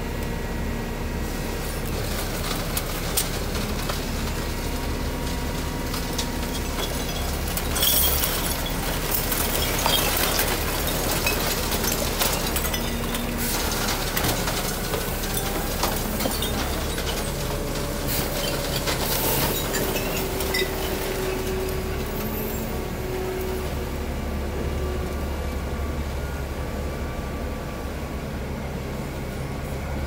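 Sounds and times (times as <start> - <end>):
garbage truck engine and hydraulics: 0.0 - 30.0
recyclables clattering and clinking: 1.9 - 22.8.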